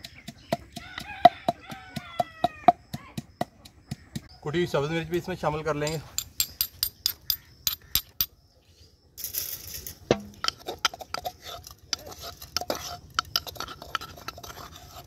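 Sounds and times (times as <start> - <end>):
metal utensil scraping clay mortar: 5.8 - 8.3, 9.2 - 15.0.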